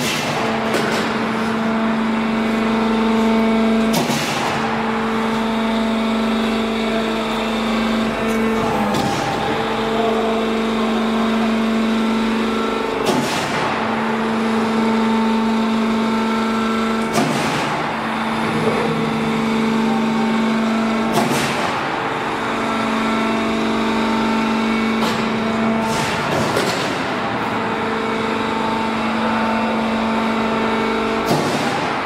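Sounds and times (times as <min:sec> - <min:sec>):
machine humming: 0:00.0 - 0:32.0.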